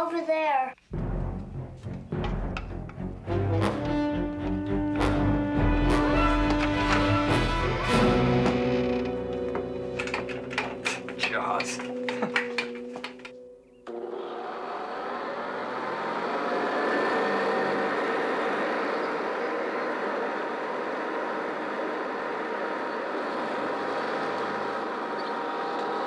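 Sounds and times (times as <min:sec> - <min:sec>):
vacuum cleaner motor whine: 0:05.6 - 0:26.0.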